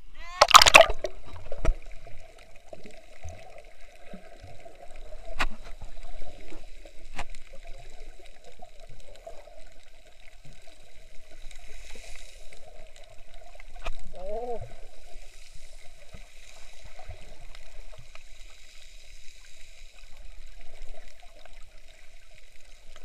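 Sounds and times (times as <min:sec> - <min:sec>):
water gurgling underwater: 0:00.0 - 0:11.3.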